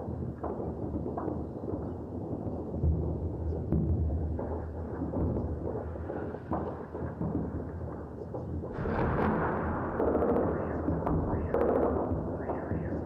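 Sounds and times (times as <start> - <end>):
distant explosions rumbling: 0.1 - 13.0
gunshot cracks: 8.8 - 11.8.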